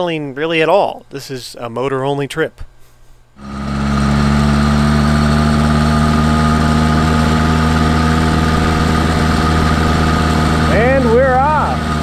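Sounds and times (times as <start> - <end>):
two-stroke engine idling: 3.4 - 12.0.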